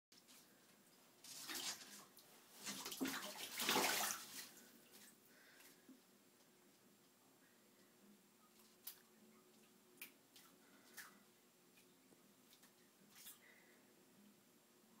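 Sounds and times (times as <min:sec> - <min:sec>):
water splashing in a bathtub: 0:00.2 - 0:05.8, 0:08.5 - 0:13.6.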